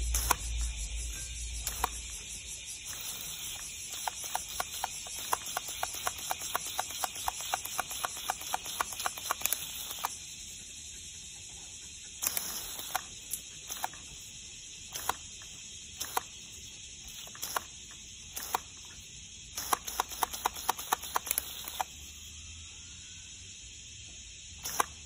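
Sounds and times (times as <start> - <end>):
garden hose spraying water: 0.0 - 10.5, 12.2 - 22.0, 24.6 - 25.0.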